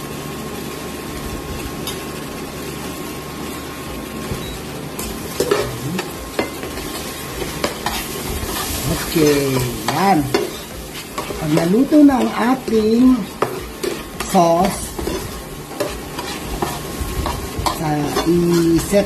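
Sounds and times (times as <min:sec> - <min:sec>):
sauce sizzling in a frying pan: 0:00.0 - 0:19.0
metal spatula scraping a pan: 0:05.3 - 0:19.0.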